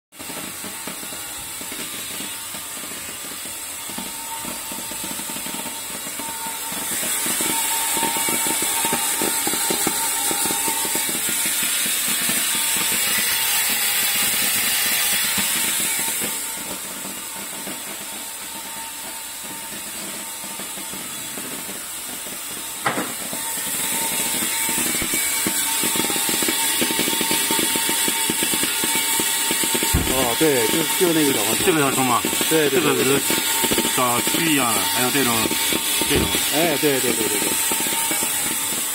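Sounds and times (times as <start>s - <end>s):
sorting machine rattling and hissing: 20.6s - 38.9s
sharp knock: 29.9s - 30.4s.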